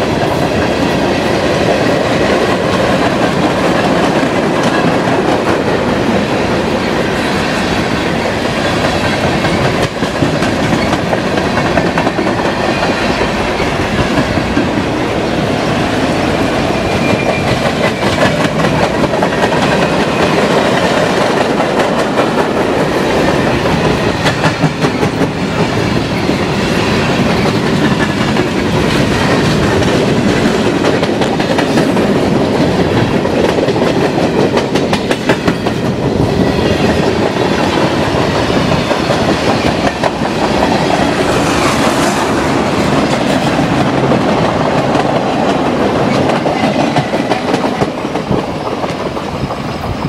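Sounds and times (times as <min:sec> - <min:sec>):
train wheels clattering on rails: 0:00.0 - 0:50.0.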